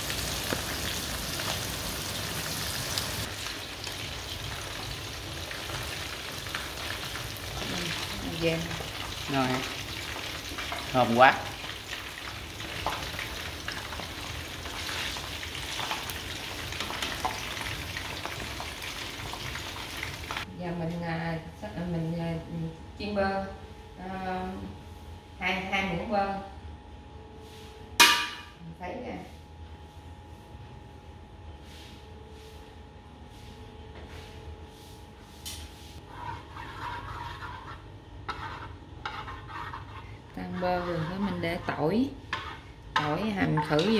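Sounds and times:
butter sizzling in a wok: 0.0 - 20.5
chicken frying in hot oil: 0.0 - 20.5
spatula scraping pan: 36.0 - 43.9.

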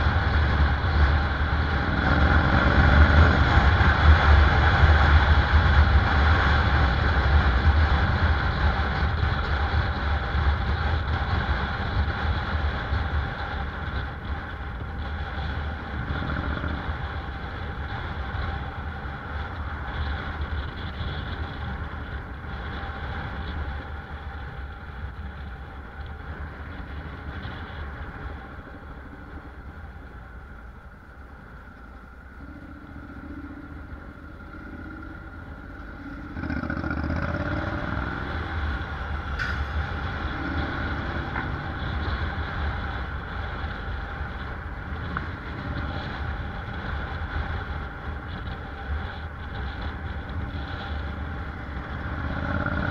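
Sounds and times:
motorcycle engine running: 0.0 - 52.9
road and tyre rumble: 0.0 - 52.9.

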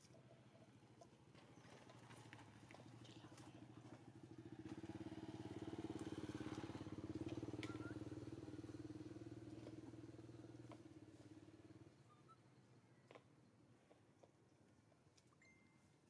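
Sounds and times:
motorbike engine passing by: 1.6 - 12.1.

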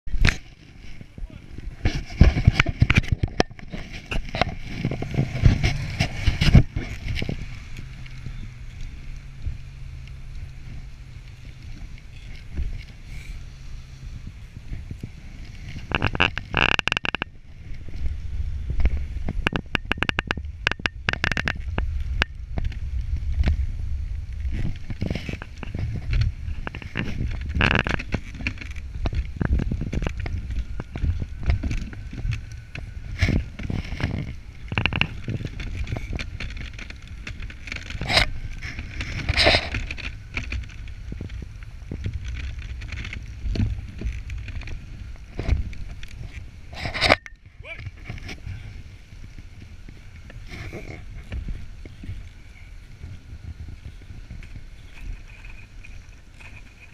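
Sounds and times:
sled runners rumbling on snow: 0.0 - 56.9
sled frame knocking and rattling: 1.6 - 7.5, 15.7 - 18.0, 18.7 - 22.8.

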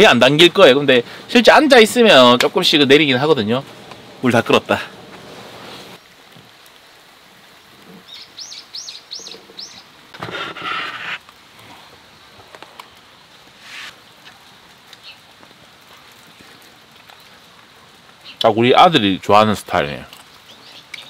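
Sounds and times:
bird chirping: 8.1 - 9.9.

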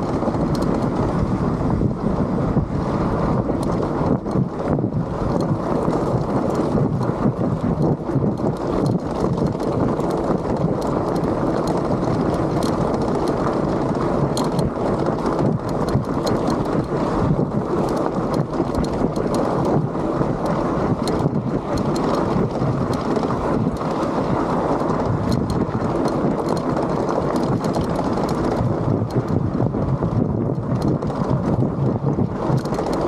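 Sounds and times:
wind noise on microphone: 0.0 - 33.0
stones clicking and rattling: 5.3 - 17.0, 17.7 - 24.0, 24.8 - 29.4, 32.4 - 33.0.

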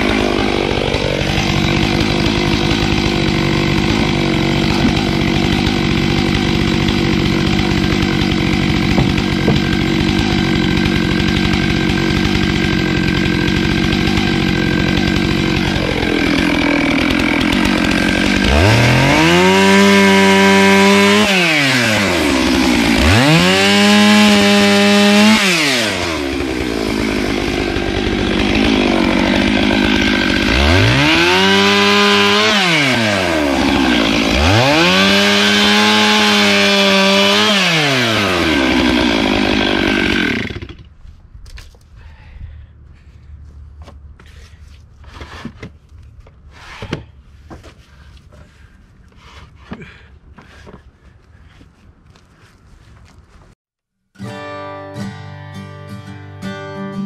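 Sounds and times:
chainsaw revving and cutting log: 0.0 - 40.9.

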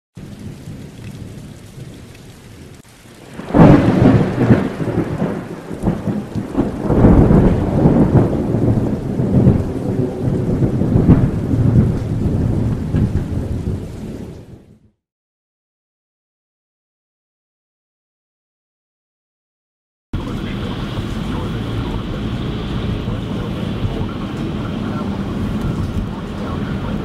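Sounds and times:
thunder rumbling: 0.2 - 14.9, 20.2 - 27.0
rain: 0.2 - 15.0, 20.2 - 27.0
loud thunder clap: 3.3 - 14.3, 20.2 - 27.0.

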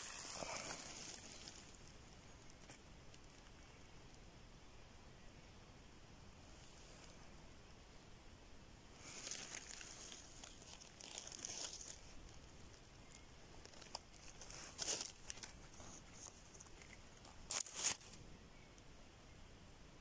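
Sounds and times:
dry leaves rustling: 0.0 - 3.6, 9.0 - 18.2
leaves crackling: 0.0 - 3.7, 9.0 - 18.2.

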